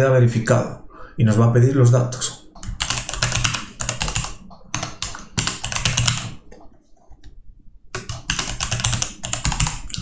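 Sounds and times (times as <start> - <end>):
typing on computer keyboard: 2.6 - 6.4, 7.9 - 10.0.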